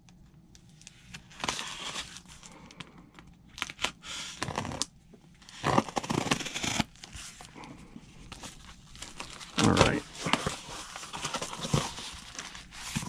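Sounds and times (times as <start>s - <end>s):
knife slitting packing tape: 5.5s - 6.9s
cardboard rustling: 8.3s - 13.0s.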